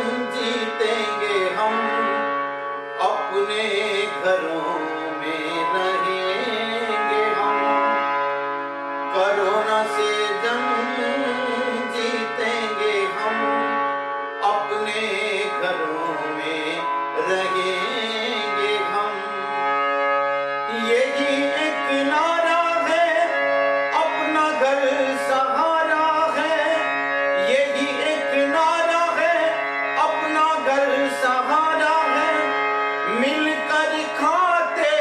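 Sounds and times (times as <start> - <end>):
man singing in high voice: 0.0 - 8.1, 9.1 - 19.9, 20.6 - 35.0
harmonium playing a melody: 0.0 - 35.0.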